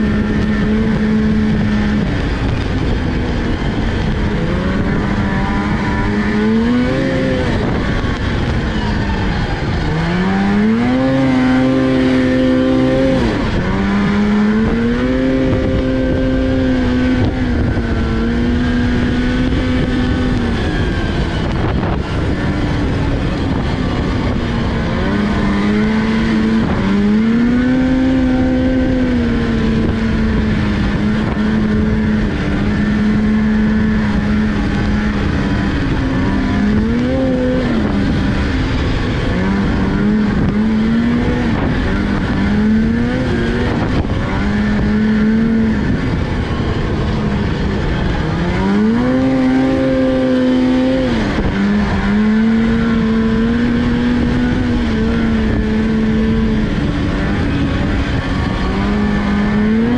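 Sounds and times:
low rushing noise: 0.0s - 59.9s
snowmobile engine running: 0.0s - 59.9s.

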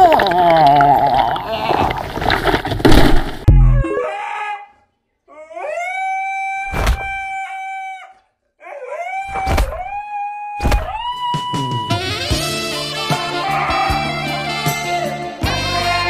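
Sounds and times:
thumps: 2.2s - 4.0s
cartoon dog howling: 3.5s - 11.9s, 12.7s - 14.3s.

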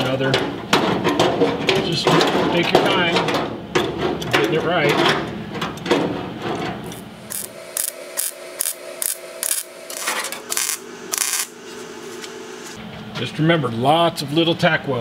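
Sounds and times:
faint steady hum: 6.9s - 15.0s.

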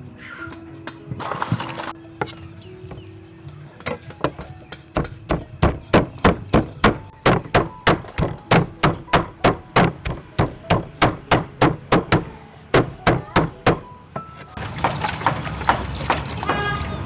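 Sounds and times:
cleaver chopping on wooden block: 3.9s - 13.8s.

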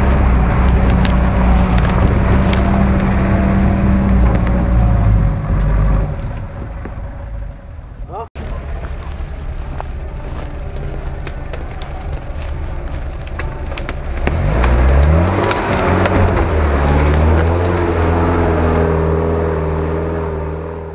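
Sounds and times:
vehicle engine running under load: 0.0s - 20.9s
branches snapping against vehicle: 0.6s - 4.7s, 8.4s - 19.6s.

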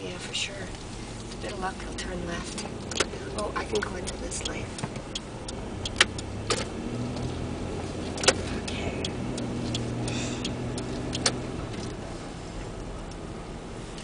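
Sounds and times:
car engine humming: 0.0s - 14.0s
sharp ticks: 2.4s - 7.5s, 8.1s - 12.0s.

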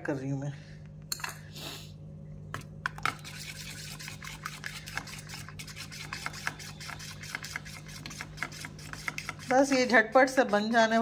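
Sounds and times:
steady low hum: 0.0s - 11.0s
spoon stirring batter in metal bowl: 2.8s - 11.0s.

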